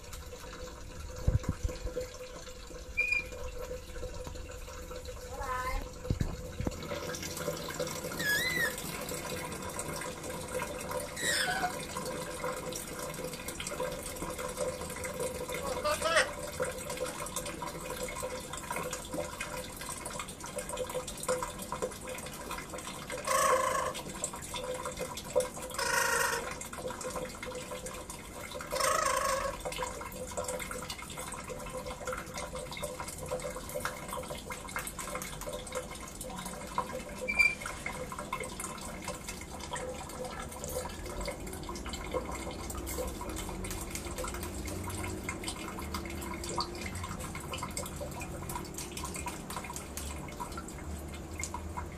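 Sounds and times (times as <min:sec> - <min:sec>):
running water: 0:00.0 - 0:51.9
water dripping: 0:00.0 - 0:51.9
parrot squawking harshly: 0:08.1 - 0:08.9, 0:11.1 - 0:11.9, 0:15.6 - 0:16.4, 0:23.2 - 0:24.0, 0:25.8 - 0:26.6, 0:28.7 - 0:29.6.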